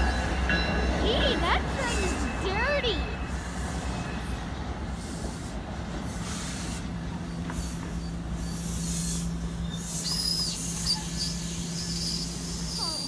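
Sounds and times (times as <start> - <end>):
train coaches rolling past: 0.0 - 13.0
high squeal: 7.2 - 13.0.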